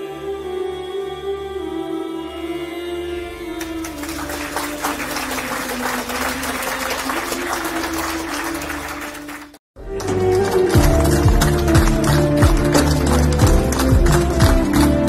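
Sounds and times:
background music: 0.0s - 15.0s
crowd applause: 3.5s - 15.0s.

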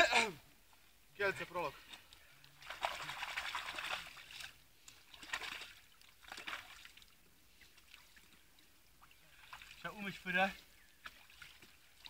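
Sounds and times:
mud squelching and sloshing: 1.8s - 9.9s.

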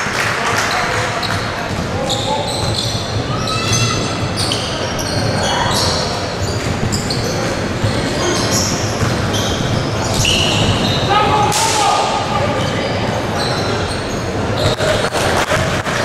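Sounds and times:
crowd din: 0.0s - 16.0s
sneakers squeaking on court: 0.7s - 11.1s, 12.5s - 15.2s
basketball bouncing: 6.5s - 10.9s.

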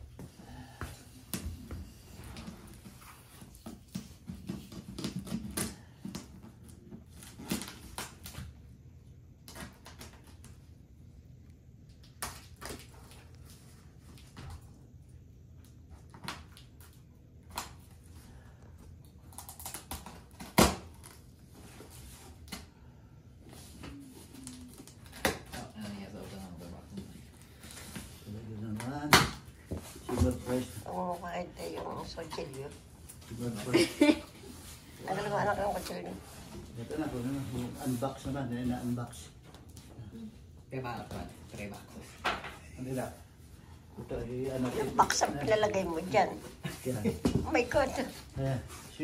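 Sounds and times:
packing tape being slit: 19.2s - 21.2s.

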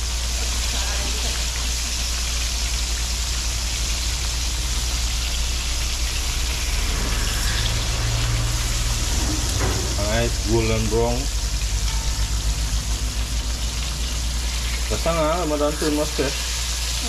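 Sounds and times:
fish sizzling in hot oil: 0.0s - 17.0s
steady low hum: 1.9s - 17.0s
second low tone: 11.8s - 12.8s.

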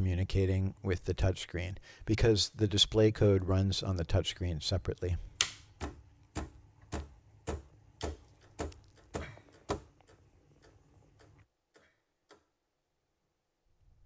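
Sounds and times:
regular sharp clicking: 5.4s - 12.6s.

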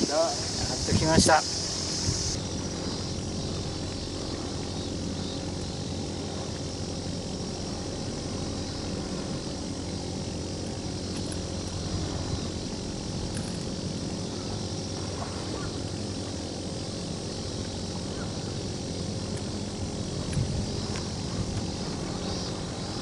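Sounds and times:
soft even hiss: 0.0s - 2.4s
low engine drone: 0.0s - 23.0s.

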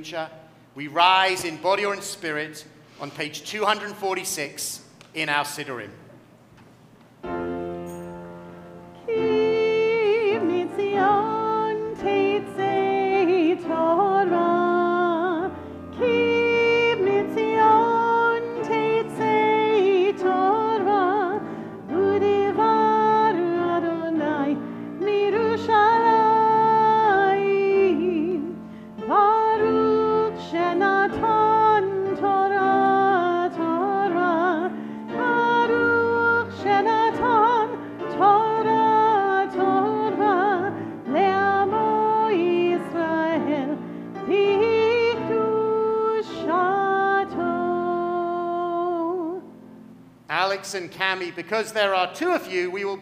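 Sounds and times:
woman singing with vibrato: 9.0s - 49.5s.

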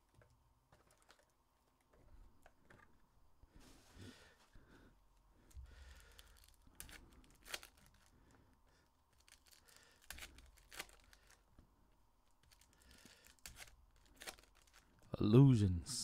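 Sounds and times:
wrapper rustling: 6.2s - 8.1s, 9.1s - 11.5s, 12.4s - 15.0s
foil wrappers ripping: 6.3s - 8.1s, 9.1s - 11.4s, 12.4s - 15.0s.

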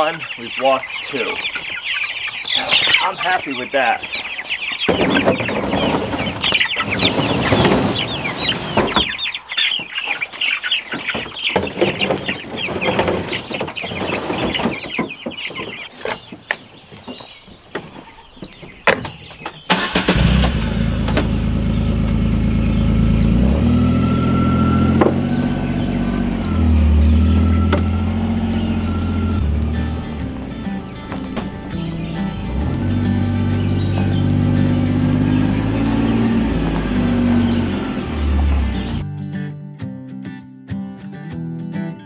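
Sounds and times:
chicks peeping: 0.0s - 19.9s, 20.8s - 39.0s
plastic crates knocking: 4.9s - 9.2s, 11.0s - 16.5s
utility vehicle engine running: 19.7s - 39.0s.

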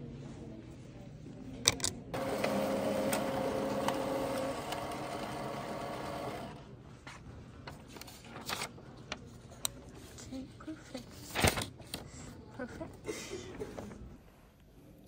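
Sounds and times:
printer running: 2.2s - 6.6s.

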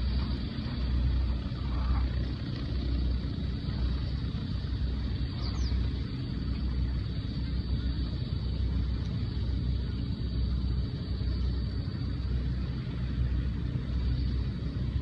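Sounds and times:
airship engines droning: 0.0s - 15.0s.

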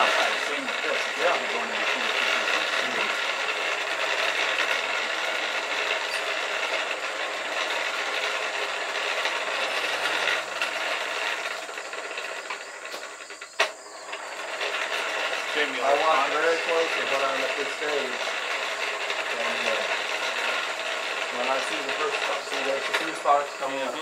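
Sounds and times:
hand-cranked blower whirring: 0.0s - 24.0s.

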